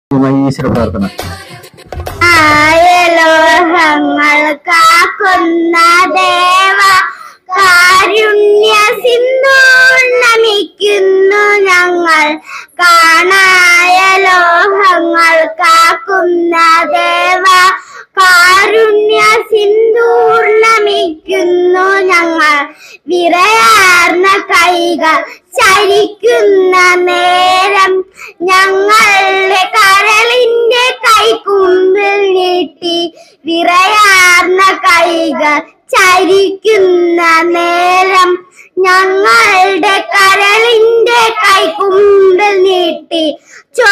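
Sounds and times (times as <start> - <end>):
girls singing into a microphone: 0.8 - 11.3, 28.6 - 31.9, 33.9 - 36.9, 39.0 - 43.1.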